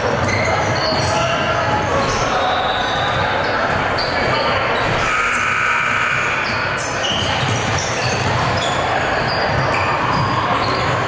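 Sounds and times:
sneakers squeaking on floor: 0:00.0 - 0:11.0
basketball dribbling: 0:06.4 - 0:11.0.

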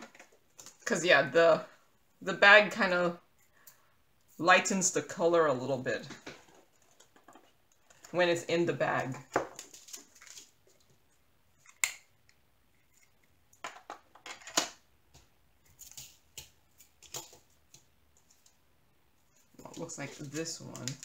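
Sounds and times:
plastic bags crinkling: 0:09.5 - 0:10.8.

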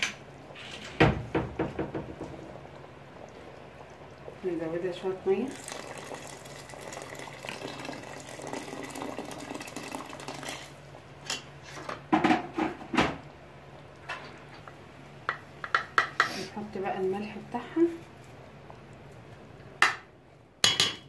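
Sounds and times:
water pouring into a pot: 0:02.3 - 0:11.0.

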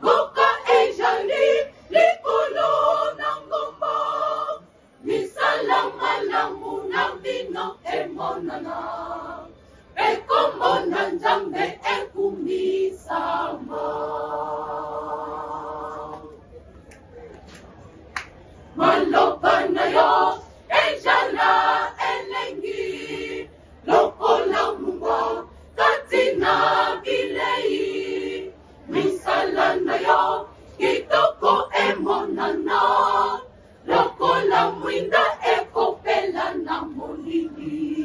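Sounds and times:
mixed choir singing a cappella: 0:00.0 - 0:16.4, 0:18.7 - 0:38.0
singers breathing: 0:09.6 - 0:10.0.

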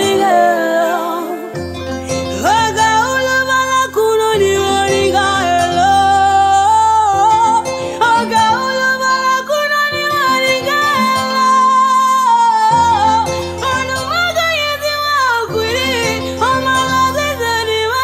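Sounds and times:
woman singing: 0:00.0 - 0:18.0.

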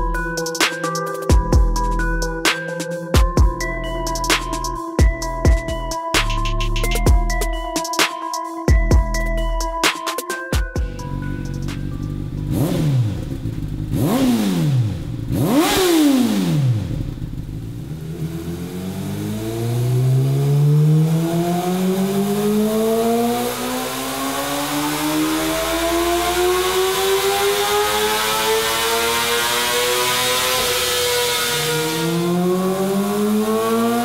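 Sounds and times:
motorcycle engine revving: 0:10.8 - 0:34.0.

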